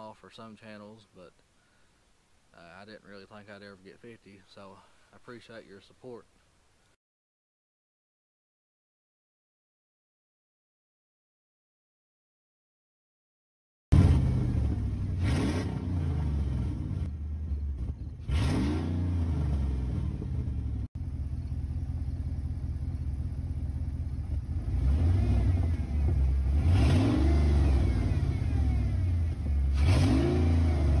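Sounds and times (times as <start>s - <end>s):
engine revving loudly: 13.9s - 17.1s, 17.8s - 20.9s, 24.6s - 31.0s.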